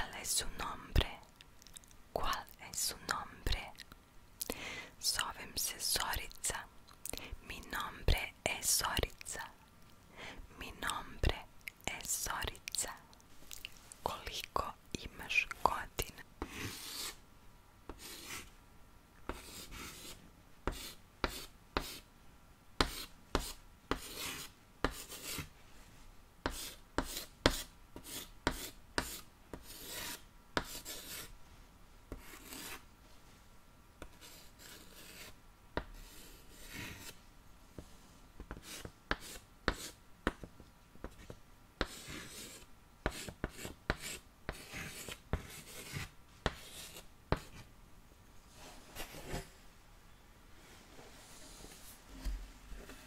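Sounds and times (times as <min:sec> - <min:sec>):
pen scratching on paper: 0:16.4 - 0:17.2, 0:17.9 - 0:18.5, 0:19.3 - 0:22.0, 0:22.8 - 0:25.5, 0:26.5 - 0:31.3, 0:32.1 - 0:32.8, 0:34.0 - 0:35.4, 0:36.0 - 0:37.2, 0:38.5 - 0:40.0, 0:41.1 - 0:47.7.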